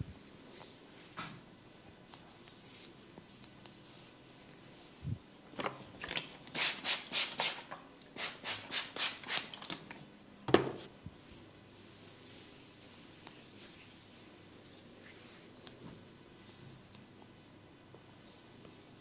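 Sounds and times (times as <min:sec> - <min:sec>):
rubbing and scratching on scalp: 0:02.0 - 0:04.5, 0:11.8 - 0:15.6.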